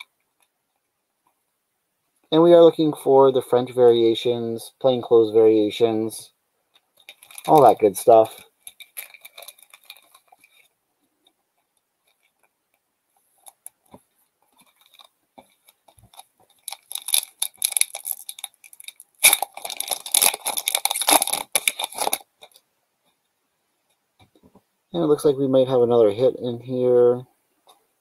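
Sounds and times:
foil wrapper crinkling and tearing: 7.0 - 10.7, 14.6 - 22.6.

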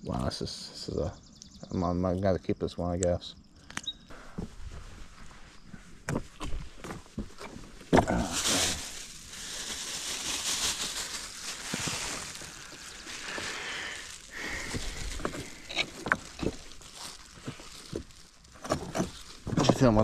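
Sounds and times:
plastic bag rustling: 4.4 - 20.0
boots stepping on rocks: 6.0 - 9.1.

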